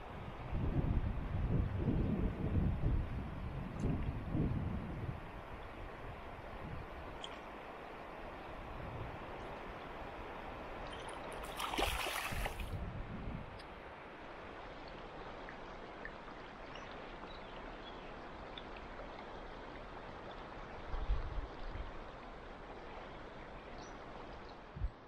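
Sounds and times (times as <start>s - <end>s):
river flowing over stones: 5.3s - 12.8s, 13.6s - 21.0s
water splash: 10.8s - 12.8s.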